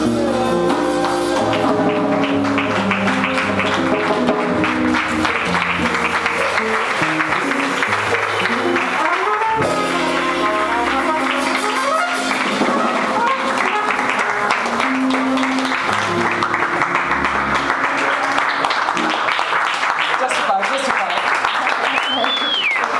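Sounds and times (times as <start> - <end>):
upright bass: 0.0 - 18.3
trumpet: 0.0 - 19.1
drums: 0.0 - 19.5
jazz guitar: 0.0 - 19.9
audience applause: 0.0 - 22.9.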